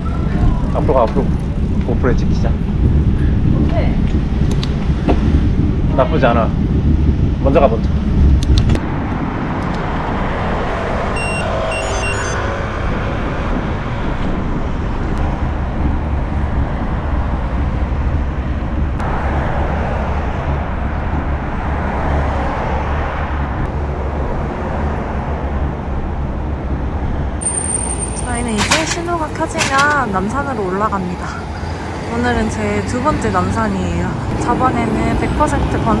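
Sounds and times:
wind rumble on microphone: 0.0 - 11.1, 12.4 - 27.4
car traffic passing: 8.0 - 36.0.

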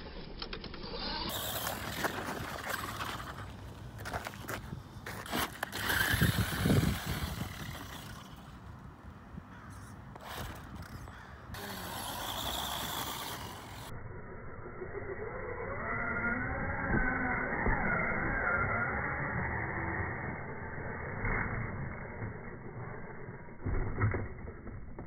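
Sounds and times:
rc truck motor and tyres: 0.0 - 25.0.

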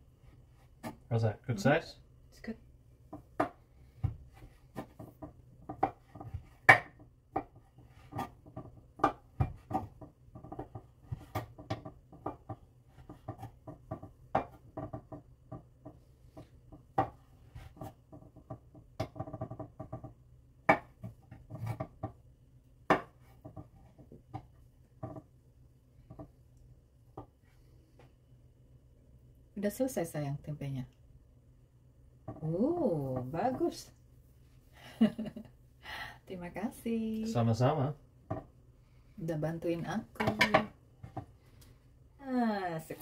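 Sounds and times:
knife chopping on wooden board: 3.2 - 15.7, 22.9 - 24.5.

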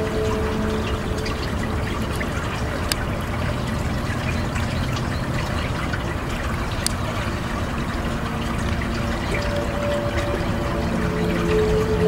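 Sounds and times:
brook trickling over stones: 0.0 - 12.0.

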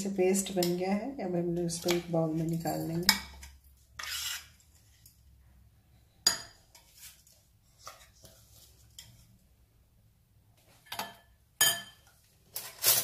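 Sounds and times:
metal spoon scraping jar: 1.8 - 5.2, 12.6 - 13.0
metal clinking on glass: 11.0 - 12.0.

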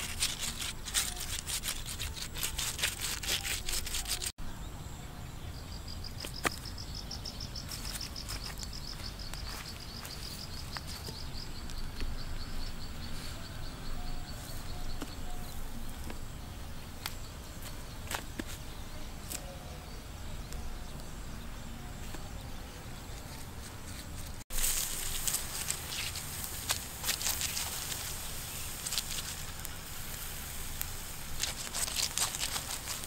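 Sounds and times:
dense crackling rustle: 0.0 - 4.4, 23.1 - 33.0.

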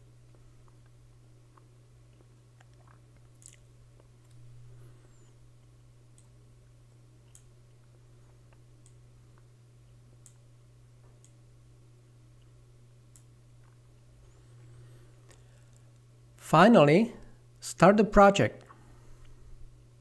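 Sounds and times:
low hum: 0.0 - 17.7, 18.5 - 20.0
faint sharp clicks: 13.1 - 13.3.

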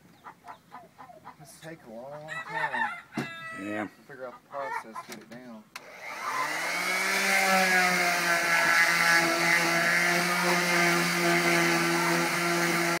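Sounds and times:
power tool motor whine: 5.8 - 13.0.

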